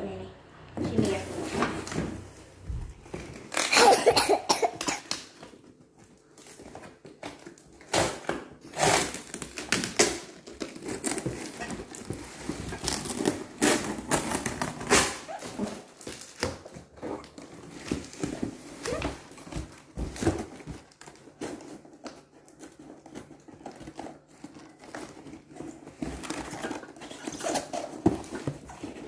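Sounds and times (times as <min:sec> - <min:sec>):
packing tape tearing: 0:03.1 - 0:05.7, 0:06.4 - 0:29.0
cardboard scraping and rustling: 0:08.6 - 0:29.0.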